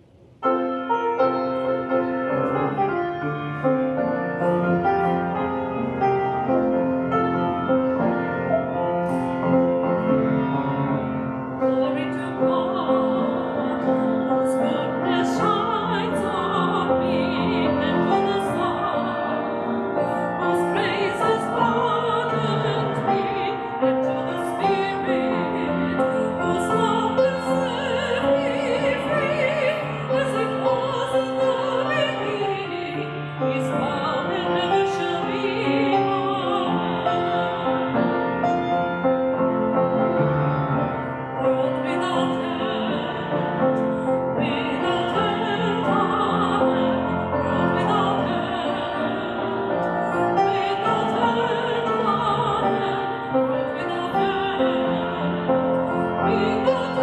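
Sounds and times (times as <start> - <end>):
piano playing: 0.0 - 57.0
woman singing with vibrato: 11.6 - 38.9, 41.3 - 57.0.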